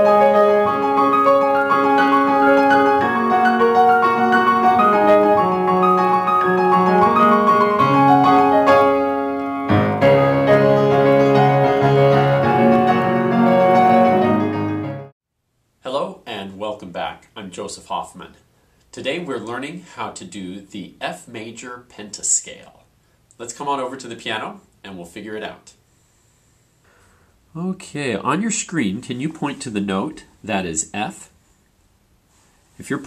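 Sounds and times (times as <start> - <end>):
grand piano playing: 0.0 - 15.1.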